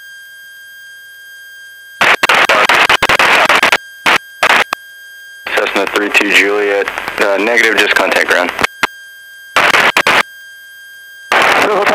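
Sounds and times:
radio static hum with whistling: 0.0s - 11.9s
loud choppy static bursts: 2.0s - 4.8s, 5.5s - 8.8s, 9.6s - 10.3s, 11.3s - 11.9s.

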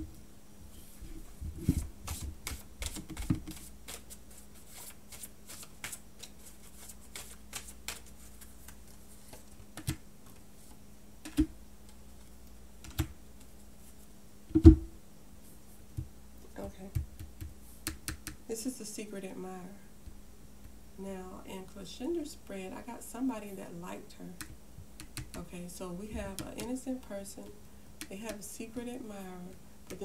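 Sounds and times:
cards being shuffled: 1.6s - 11.4s.

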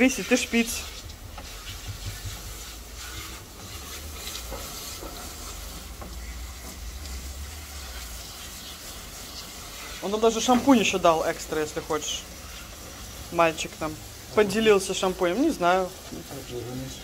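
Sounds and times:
water spray hissing: 0.0s - 17.0s.

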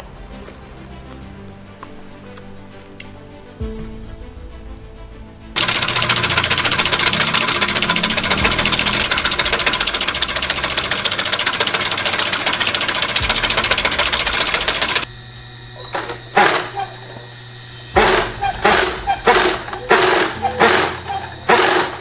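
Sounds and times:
sewing machine clattering: 5.6s - 15.1s, 15.9s - 17.0s, 18.0s - 22.0s.

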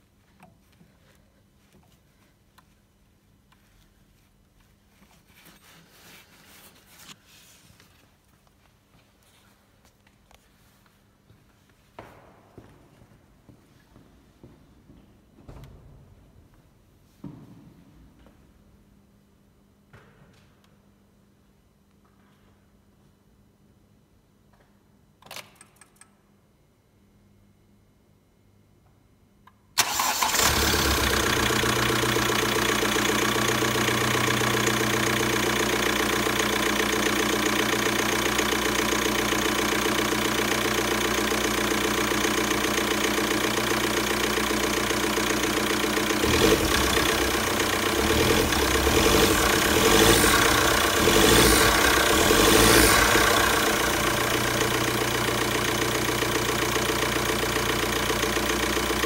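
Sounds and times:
diesel engine starting and idling: 29.8s - 59.0s.

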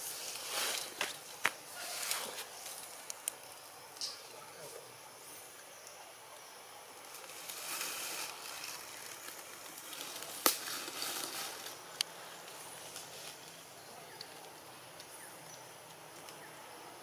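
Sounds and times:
crackling and rustling: 0.0s - 4.8s, 7.0s - 15.2s.

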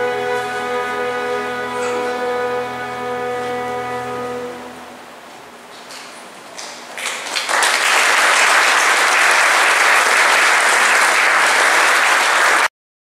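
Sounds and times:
audience applauding: 6.6s - 12.7s.

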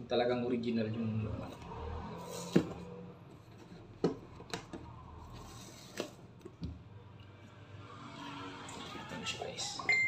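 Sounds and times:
box handling clicks and taps: 3.5s - 4.9s.

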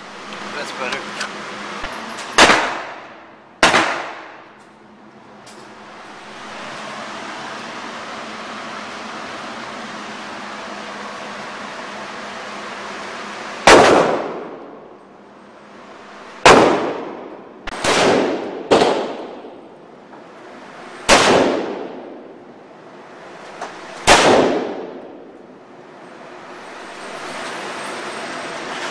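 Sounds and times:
rifle shots echoing indoors: 2.4s - 4.5s, 13.6s - 14.8s, 16.4s - 19.7s, 21.0s - 22.3s, 24.0s - 25.3s.

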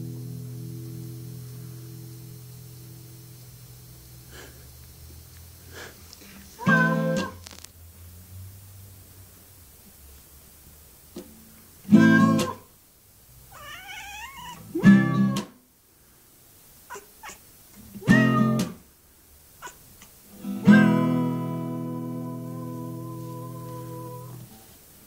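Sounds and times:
acoustic guitar chords: 0.0s - 4.6s, 6.6s - 7.4s, 11.2s - 12.7s, 14.6s - 15.6s, 17.9s - 18.8s, 20.3s - 24.6s
cat meowing: 6.6s - 7.4s, 13.5s - 15.4s, 16.9s - 18.8s, 19.6s - 21.1s.

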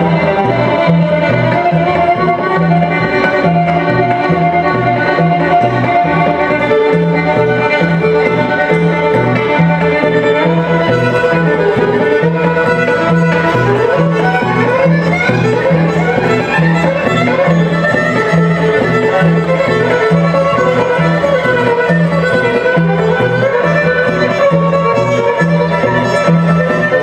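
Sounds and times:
fiddle melody with sliding notes: 0.0s - 27.0s
guitar: 0.0s - 27.0s.

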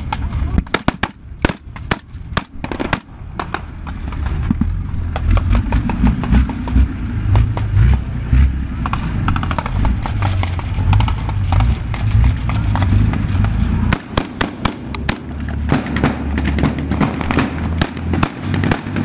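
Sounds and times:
heavy low rumble: 0.0s - 19.0s
small-arms gunfire: 0.6s - 3.7s, 13.9s - 19.0s.

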